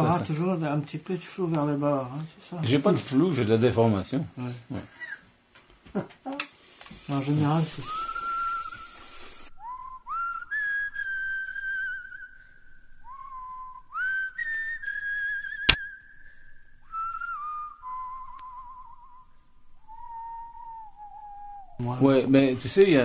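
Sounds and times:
person whistling held notes: 7.8s - 21.8s.

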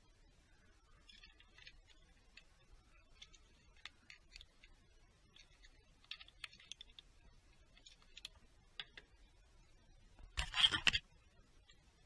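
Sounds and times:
small parts clicking by hand: 1.0s - 9.1s.

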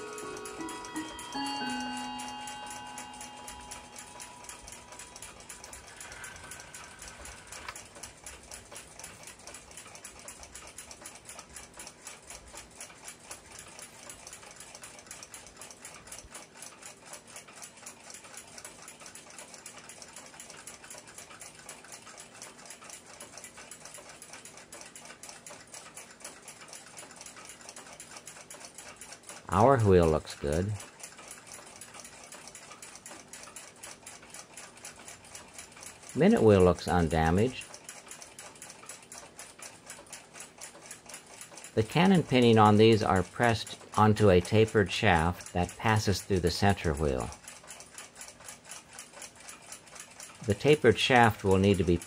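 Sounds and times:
held music notes: 0.0s - 5.6s
clock ticking rapidly: 0.0s - 52.0s.

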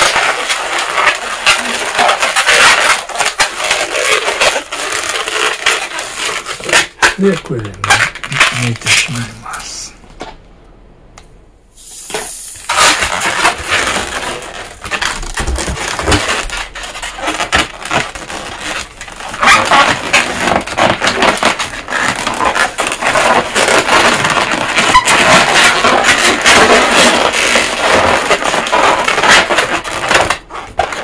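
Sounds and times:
balloons squeaking and rubbing: 0.0s - 10.0s, 11.8s - 31.0s.

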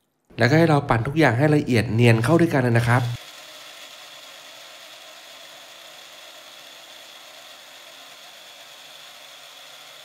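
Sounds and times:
electric blender whirring: 2.2s - 10.0s.

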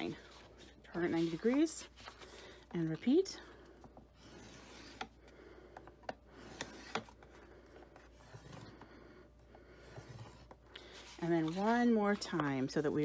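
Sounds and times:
bone folder scraping paper: 9.8s - 13.0s.

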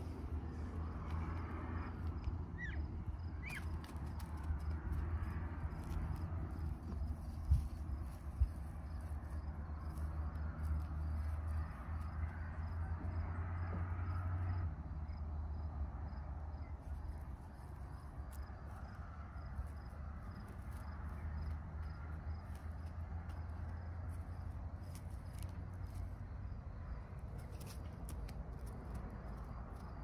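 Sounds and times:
steady low rumble: 0.0s - 14.2s.

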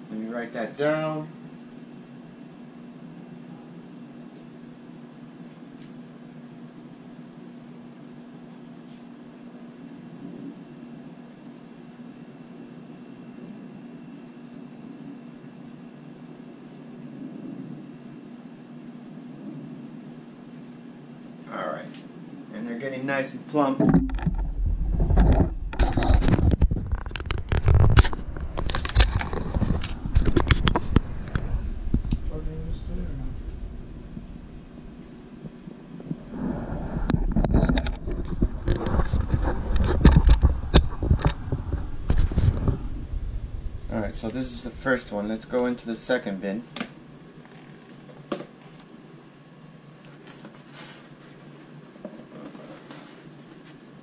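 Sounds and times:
low room noise: 0.0s - 54.0s
camera handling knocks and scrapes: 23.8s - 32.2s
low rumble: 24.0s - 45.9s.

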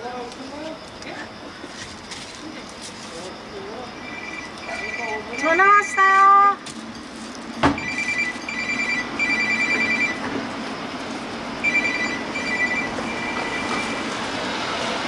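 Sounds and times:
phone ringing with two-tone trill: 4.0s - 6.3s, 7.8s - 10.2s, 11.6s - 14.2s.

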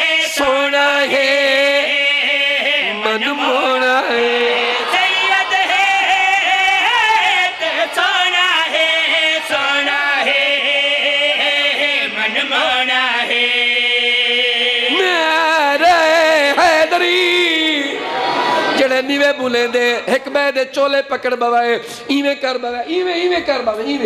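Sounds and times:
men chanting: 0.0s - 19.1s.

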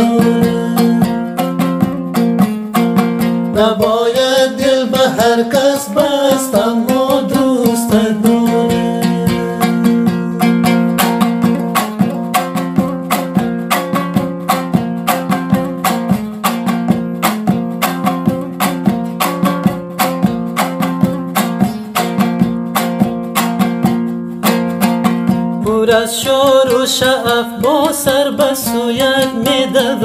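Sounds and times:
lute strummed fast: 0.0s - 30.0s.

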